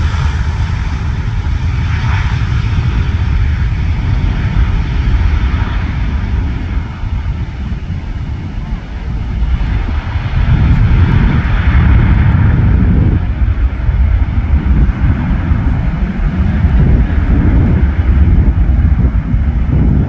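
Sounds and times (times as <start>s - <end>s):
jet engines roaring: 0.0s - 20.0s.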